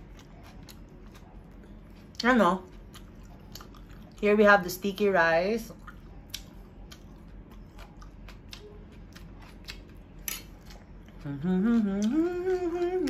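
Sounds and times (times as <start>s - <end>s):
wet eating clicks and smacks: 5.7s - 10.0s
person humming: 11.1s - 13.0s.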